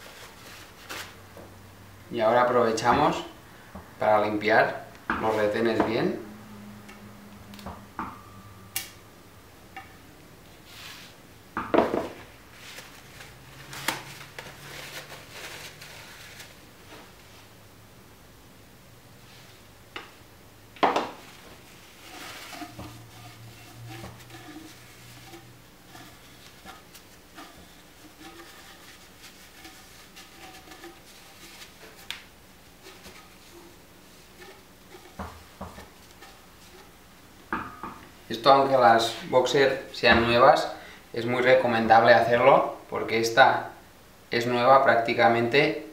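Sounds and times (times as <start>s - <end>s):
paper towel rustling: 0.0s - 1.3s, 12.5s - 17.5s, 21.1s - 37.1s.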